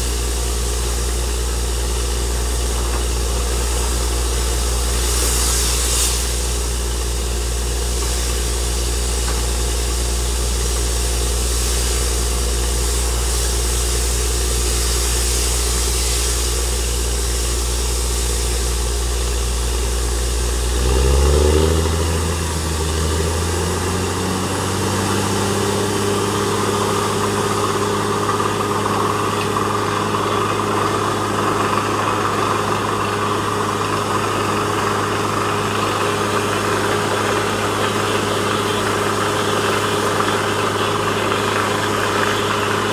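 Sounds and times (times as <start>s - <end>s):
drilling rig engine running: 0.0s - 42.9s
thin whine: 14.8s - 42.9s.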